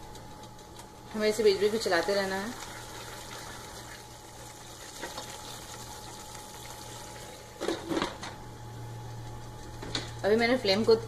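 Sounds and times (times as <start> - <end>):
sauce bubbling in a pan: 1.0 - 7.6.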